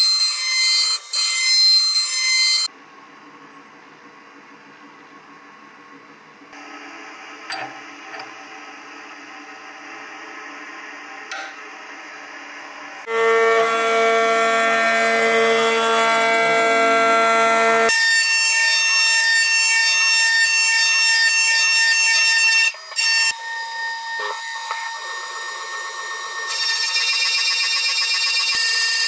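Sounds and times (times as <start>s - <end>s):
milling machine cutting metal: 13.1s - 27.0s.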